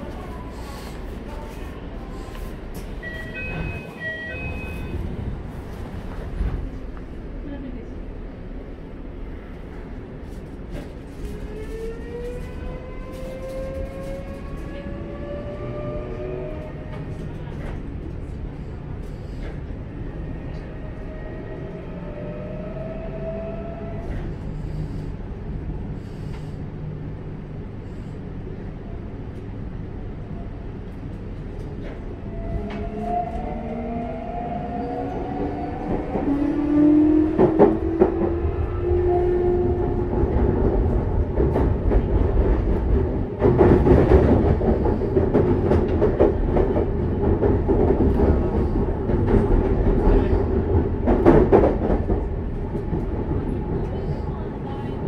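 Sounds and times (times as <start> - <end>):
wheel and rail rumble: 0.0 - 55.0
rail joint clicks: 30.8 - 54.0.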